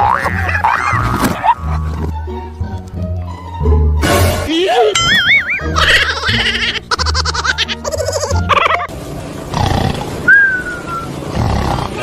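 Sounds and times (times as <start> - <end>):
background music: 0.0 - 10.2
rough roar-like noises: 9.4 - 10.6, 11.2 - 12.0.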